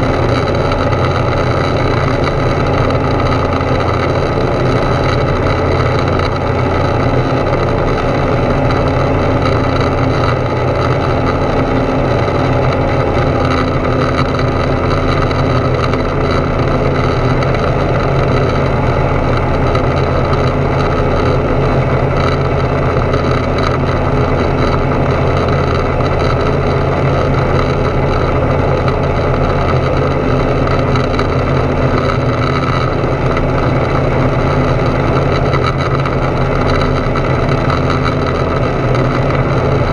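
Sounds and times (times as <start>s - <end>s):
light aircraft engine in flight: 0.0s - 39.9s.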